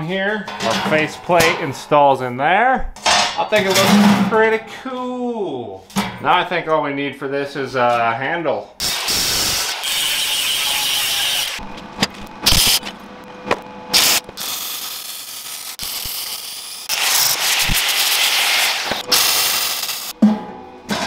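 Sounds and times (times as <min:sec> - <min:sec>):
angle grinder cutting steel: 0:08.8 - 0:11.6, 0:13.9 - 0:20.1.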